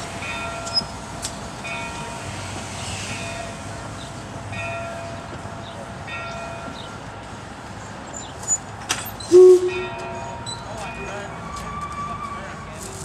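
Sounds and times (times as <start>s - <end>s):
steam locomotive running: 9.1s - 11.5s
brief loud tone: 9.3s - 10.3s
faint ringing tones: 9.3s - 10.6s.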